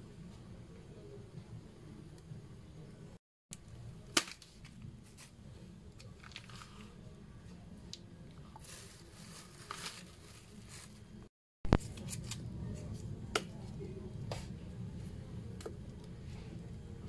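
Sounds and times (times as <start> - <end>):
low steady hum: 0.0 - 17.0
plastic bag crinkling: 8.6 - 11.1.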